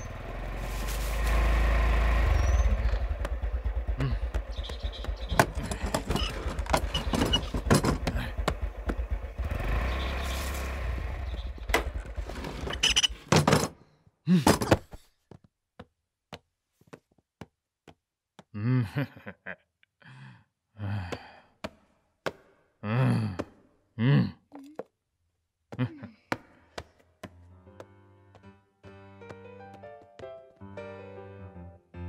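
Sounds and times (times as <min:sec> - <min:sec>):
motorbike engine rumbling: 0:00.0 - 0:13.7.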